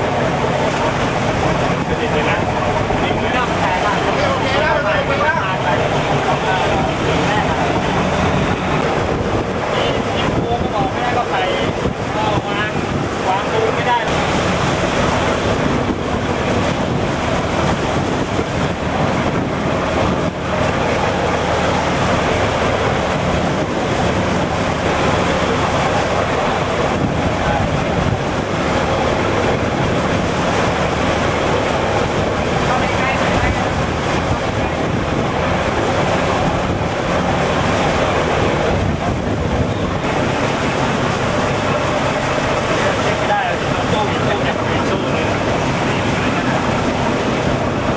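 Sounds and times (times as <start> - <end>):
boat engine running: 0.0 - 47.9
rough sea wash: 0.0 - 47.9
wind buffeting microphone: 0.0 - 47.9.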